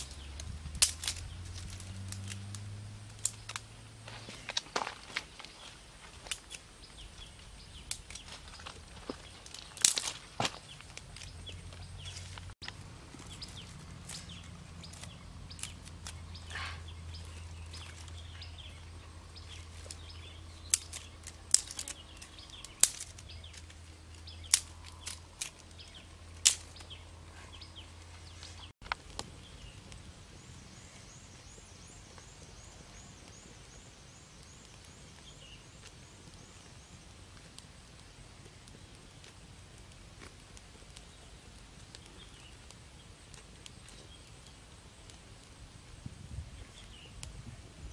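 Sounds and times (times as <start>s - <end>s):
dry sticks snapping: 0.0s - 30.0s.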